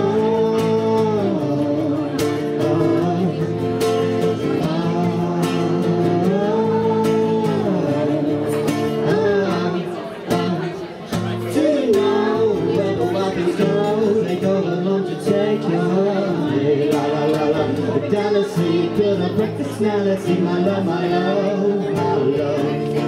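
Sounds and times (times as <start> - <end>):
acoustic guitar strumming: 0.0 - 23.0
man and woman singing together: 0.0 - 23.0.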